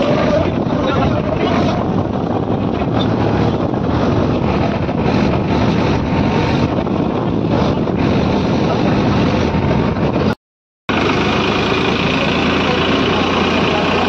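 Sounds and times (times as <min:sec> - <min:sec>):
tractor diesel engine running: 0:00.0 - 0:14.0
wind buffeting microphone: 0:00.0 - 0:14.0.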